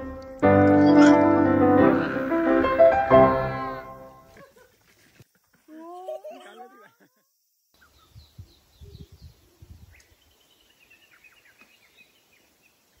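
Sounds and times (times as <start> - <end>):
small birds chirping: 7.7 - 13.0.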